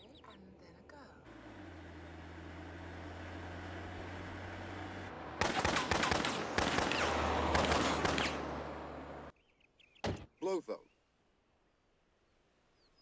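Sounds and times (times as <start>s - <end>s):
car engine humming: 1.2s - 9.3s
automatic gunfire: 5.4s - 8.4s.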